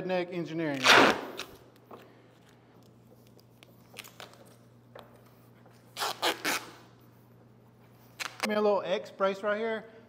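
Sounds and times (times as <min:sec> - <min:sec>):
steady low hum: 0:00.0 - 0:10.0
taps and rustles of handling: 0:01.7 - 0:05.9.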